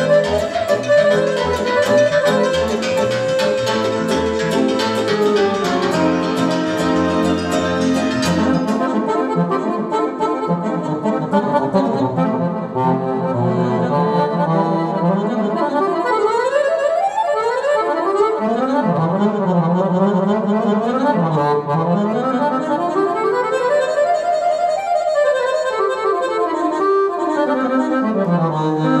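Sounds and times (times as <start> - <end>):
steady backing beat: 0.0 - 10.0
button accordion solo: 0.0 - 29.0.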